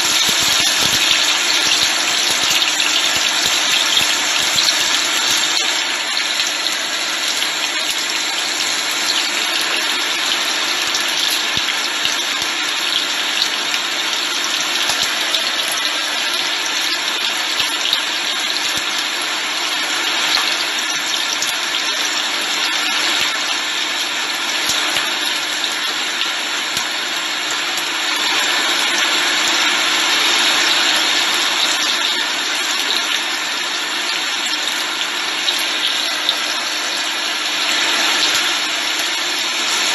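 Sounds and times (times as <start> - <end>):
aromatics sizzling in hot oil: 0.0 - 39.9.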